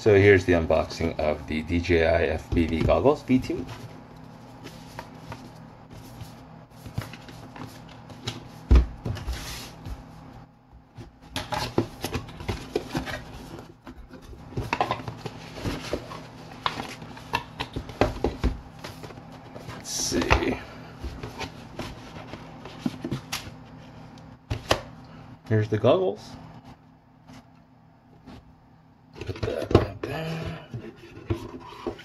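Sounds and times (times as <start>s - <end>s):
cardboard rubbing and scraping: 4.5s - 9.9s.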